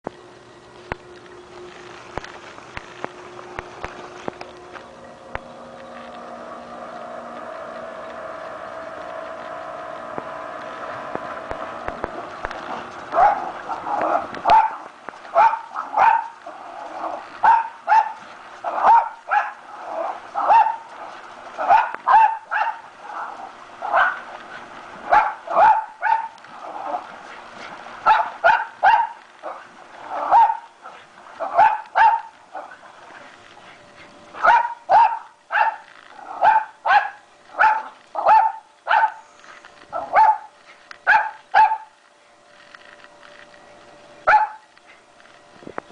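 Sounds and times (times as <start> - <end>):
small dog yapping: 21.6 - 22.8, 28.1 - 30.7, 31.4 - 32.8, 34.4 - 39.2, 39.9 - 41.9, 44.3 - 44.6.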